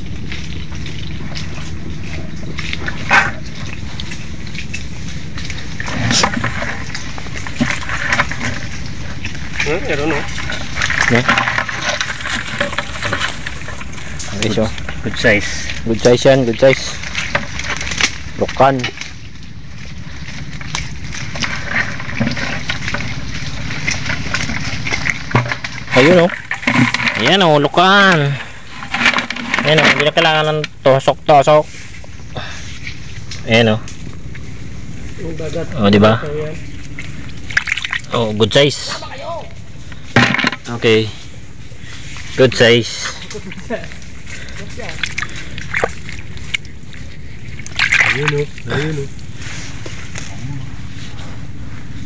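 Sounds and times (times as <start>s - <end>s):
low rumble: 0.0s - 52.0s
squelching steps in mud: 0.0s - 52.0s
twigs and leaves crackling: 0.0s - 52.0s
branches rustling against phone: 19.0s - 30.4s, 49.1s - 52.0s.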